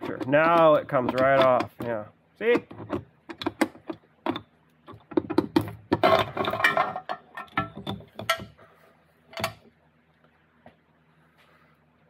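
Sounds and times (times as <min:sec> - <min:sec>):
metallic clinks and clunks: 0:02.6 - 0:08.6.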